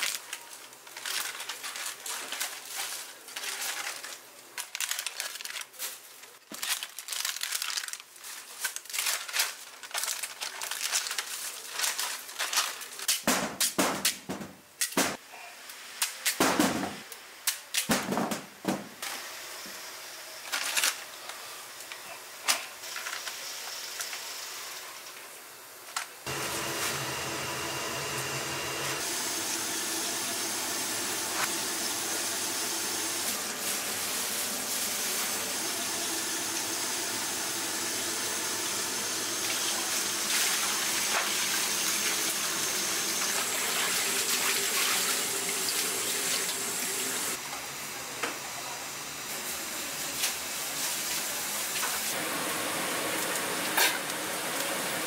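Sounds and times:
water running into steel basin: 29.0 - 47.4
water boiling in pots: 29.0 - 55.0.

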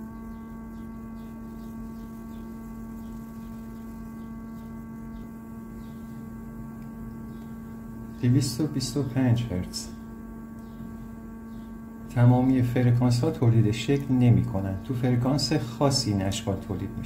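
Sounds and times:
steady loudspeaker hum: 8.0 - 10.1, 12.0 - 17.0.

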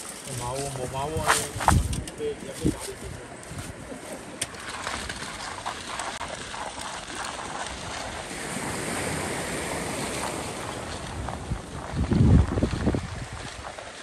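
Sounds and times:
choppy sea against pier: 0.0 - 14.0
wind buffeting microphone: 0.0 - 14.0
short scuffs and taps: 0.5 - 3.7.

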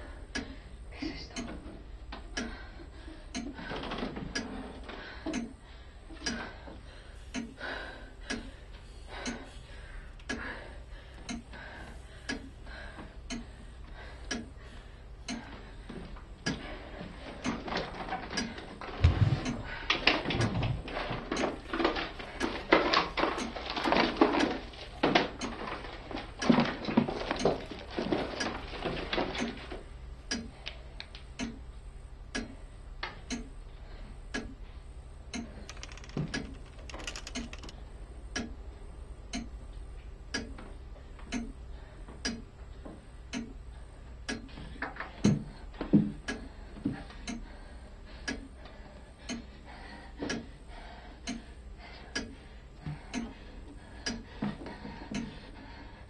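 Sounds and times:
clock ticking: 1.3 - 1.6, 2.3 - 2.7, 3.3 - 3.6, 5.3 - 5.6, 7.3 - 7.6, 8.2 - 8.5, 9.1 - 9.5, 10.2 - 10.5, 11.2 - 11.6, 12.2 - 12.5, 13.2 - 13.6, 14.2 - 14.6, 15.2 - 15.5, 16.4 - 16.7, 18.4 - 20.8, 25.4 - 25.6, 30.3 - 30.6, 31.3 - 31.7, 32.3 - 32.6, 33.2 - 33.6, 34.3 - 34.6, 35.3 - 38.6, 39.2 - 39.6, 40.3 - 40.6, 41.3 - 41.6, 42.2 - 42.5, 43.3 - 43.6, 44.2 - 44.5, 47.2 - 47.5, 48.2 - 48.5, 49.2 - 49.5, 50.3 - 50.5, 51.2 - 51.5, 52.1 - 53.4, 55.1 - 55.4
knocks and rustles: 17.2 - 29.9, 35.6 - 37.8.

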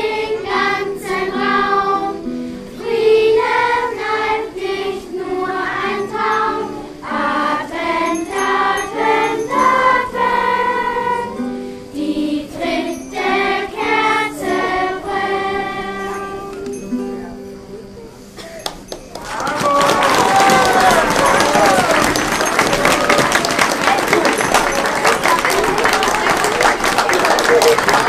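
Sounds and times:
children's choir singing: 0.0 - 17.7, 19.8 - 28.0
guitar accompaniment: 0.0 - 19.2.

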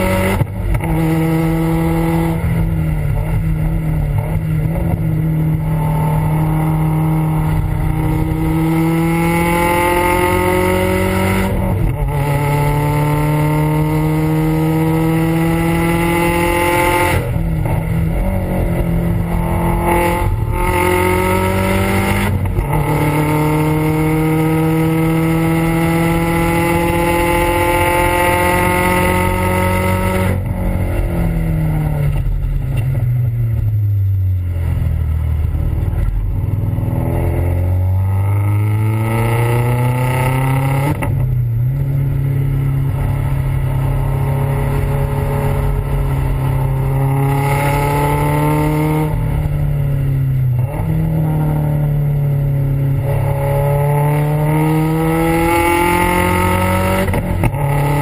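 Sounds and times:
car exhaust revving hard: 0.0 - 32.5.

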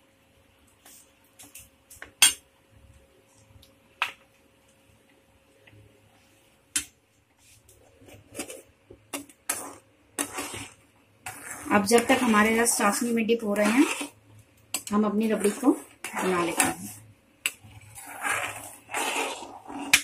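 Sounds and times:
scraping and stirring in pan: 6.2 - 20.0.

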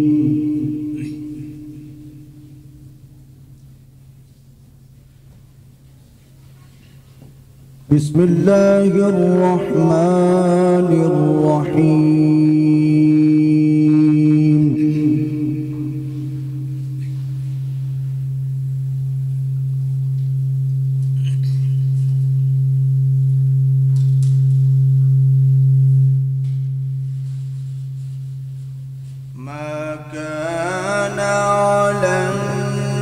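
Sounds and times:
man reciting melodically over pa: 0.0 - 2.6, 7.9 - 17.3, 29.3 - 33.0
pa feedback hum: 0.0 - 33.0.

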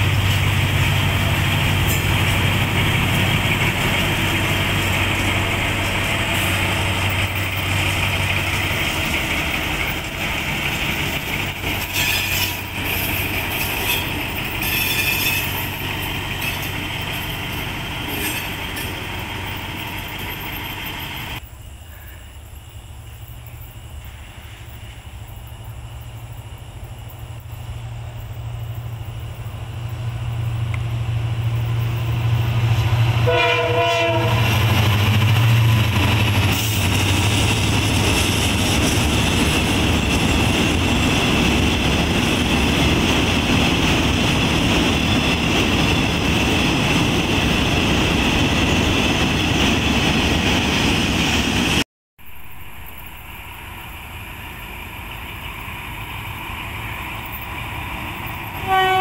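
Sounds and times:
wheels clattering on rail: 0.0 - 21.4, 27.0 - 51.8
diesel locomotive engine running: 0.0 - 21.5, 22.9 - 51.8, 52.4 - 59.0
approaching locomotive: 0.0 - 59.0
train horn blast: 33.1 - 34.7, 58.6 - 59.0.

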